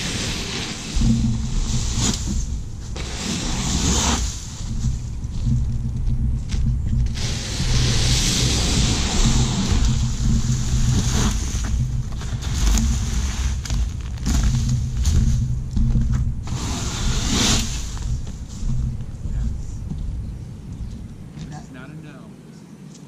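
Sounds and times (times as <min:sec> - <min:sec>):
brush raked across a roof: 0:00.0 - 0:05.6, 0:07.0 - 0:15.6, 0:16.4 - 0:19.8.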